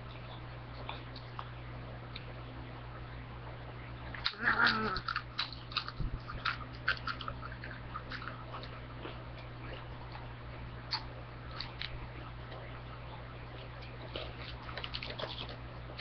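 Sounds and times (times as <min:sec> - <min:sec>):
chips being crunched: 0:04.2 - 0:08.7.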